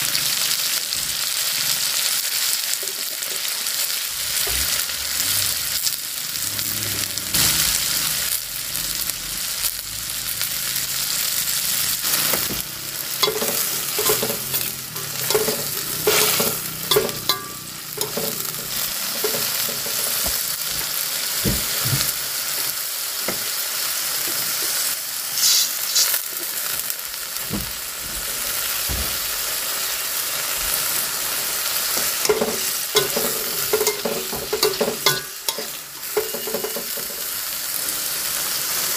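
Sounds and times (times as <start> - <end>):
food sizzling in a wok: 0.0 - 38.9
stirring scrapes against pan: 13.2 - 20.9.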